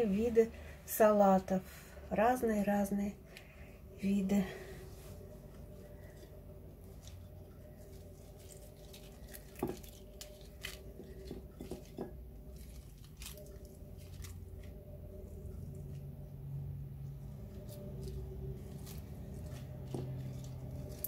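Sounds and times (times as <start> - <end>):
faint steady hum: 0.0 - 21.0
lettuce leaves rustling: 4.6 - 16.1, 17.2 - 21.0.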